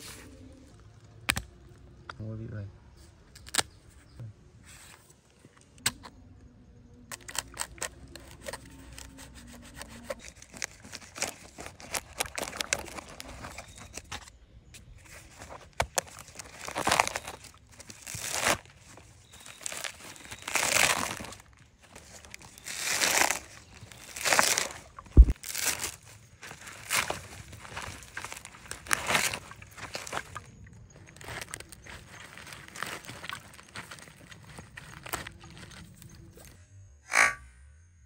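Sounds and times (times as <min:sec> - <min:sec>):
coconut husk tearing: 0:00.0 - 0:02.1, 0:03.3 - 0:03.8, 0:07.1 - 0:36.6.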